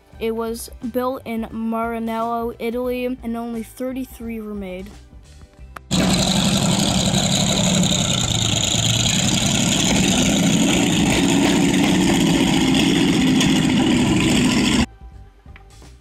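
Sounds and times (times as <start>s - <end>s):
car engine idling: 5.9s - 14.9s.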